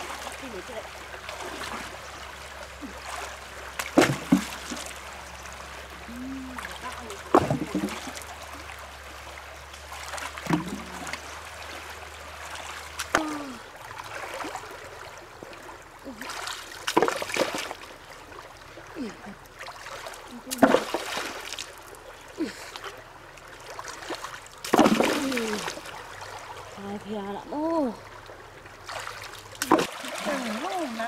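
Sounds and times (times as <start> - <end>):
stream running over rocks: 0.0 - 31.0
hands splashing in water: 19.8 - 21.7, 28.9 - 31.0.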